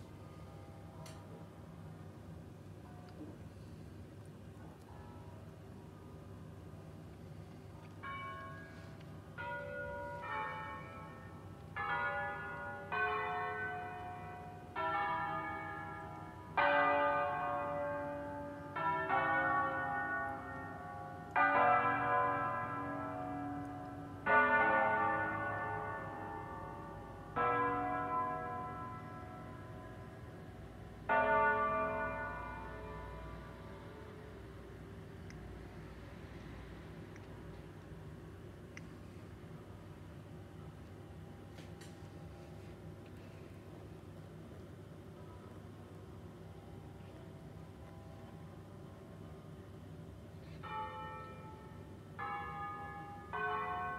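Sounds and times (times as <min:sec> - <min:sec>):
church bells ringing: 0:08.0 - 0:34.2, 0:50.5 - 0:53.9.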